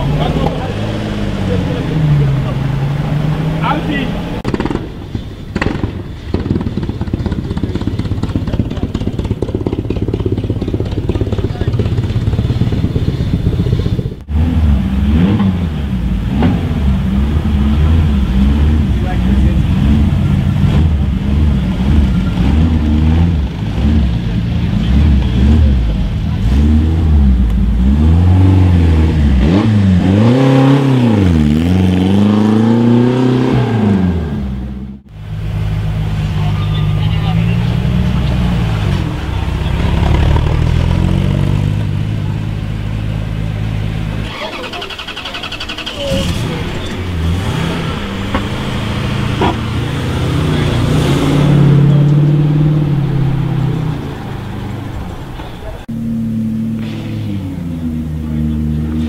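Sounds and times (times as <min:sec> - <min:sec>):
racing car engine pulsing: 0:00.0 - 0:59.0
sharp crack: 0:04.4 - 0:12.3, 0:56.7 - 0:57.7.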